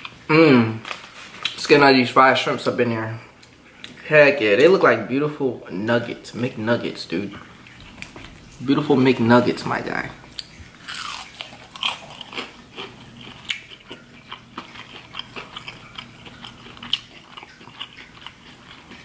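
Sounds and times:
crunchy chewing: 7.4s - 8.6s, 10.3s - 19.0s.

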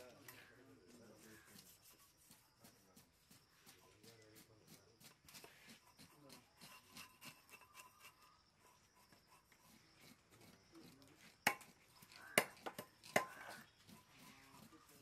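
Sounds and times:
faint background voices: 0.0s - 7.1s
knife scraping fish scales: 5.0s - 11.0s.

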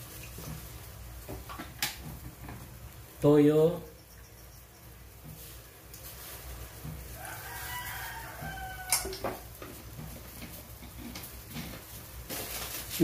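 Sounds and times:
rooster crowing: 7.0s - 9.6s.

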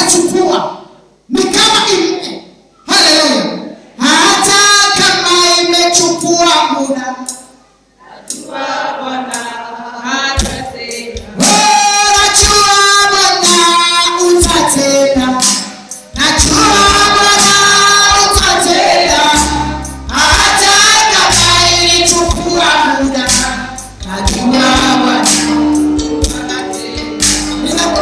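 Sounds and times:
congregation and choir singing: 7.9s - 28.0s
instrumental accompaniment: 13.4s - 28.0s.

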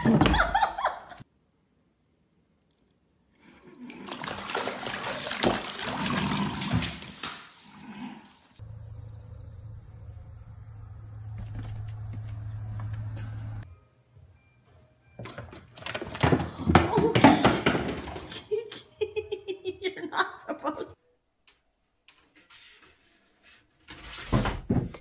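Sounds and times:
water splashing in bathtub: 3.5s - 7.3s.

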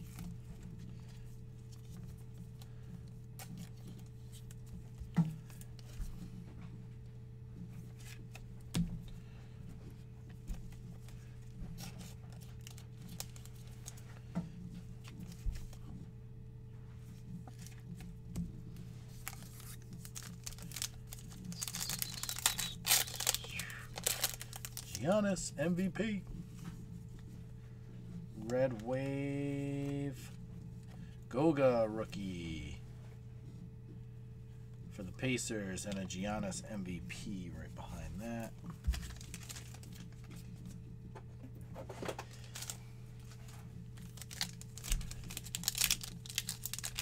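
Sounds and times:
steady low hum: 0.0s - 47.0s
foil pack crinkling open: 11.8s - 14.0s, 19.1s - 25.2s, 38.3s - 40.6s, 42.2s - 47.0s
cards sliding through hands: 19.1s - 25.0s.

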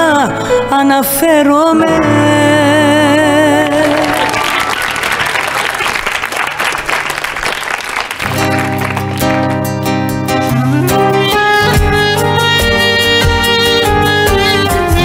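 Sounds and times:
guitar and band chords: 1.6s - 4.7s, 8.3s - 15.0s
audience applause: 3.4s - 9.7s.

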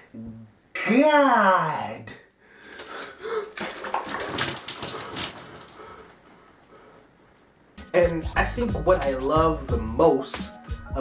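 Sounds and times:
water splashing on clothes: 2.7s - 7.4s.

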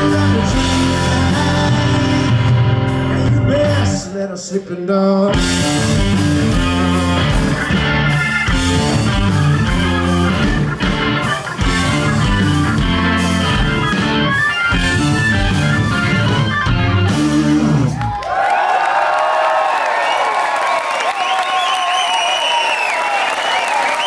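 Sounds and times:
live rock band playing: 0.0s - 18.2s
crowd cheering: 5.9s - 24.0s.

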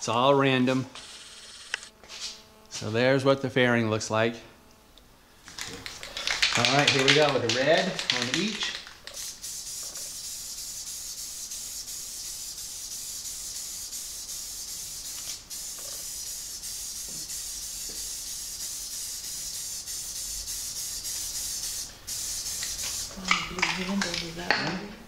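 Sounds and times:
aerosol spray can hissing: 5.6s - 24.6s.

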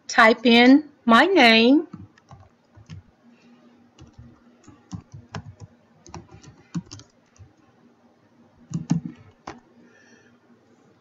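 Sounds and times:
faint steady hum: 0.0s - 11.0s
typing on computer keyboard: 1.9s - 3.1s, 4.0s - 7.6s, 8.7s - 9.6s.

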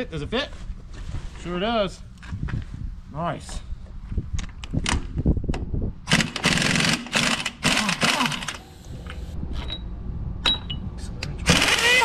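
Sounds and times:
impact wrench rattling: 6.1s - 8.5s, 11.5s - 12.0s.

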